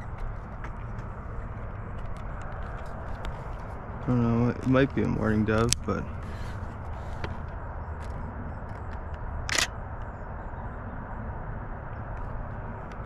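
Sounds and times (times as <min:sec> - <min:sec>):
steady low rumble: 0:00.0 - 0:13.0
camera shutter click: 0:09.5 - 0:09.7.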